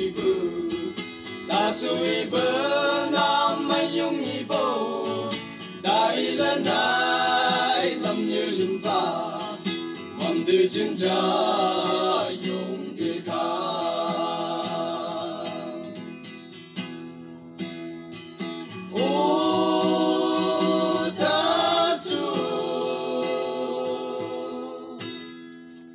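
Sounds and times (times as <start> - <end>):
men singing together: 0.0 - 16.0, 18.9 - 25.1
strummed guitar: 0.0 - 25.9.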